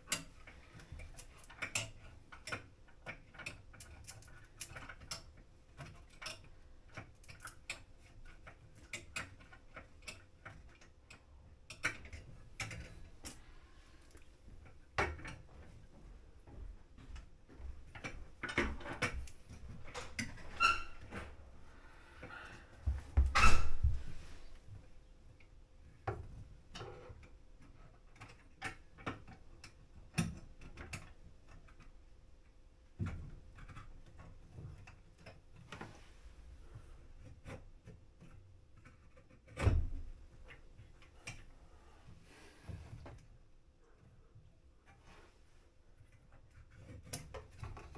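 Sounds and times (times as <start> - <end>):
clicks and knocks of tools: 0.0 - 13.5.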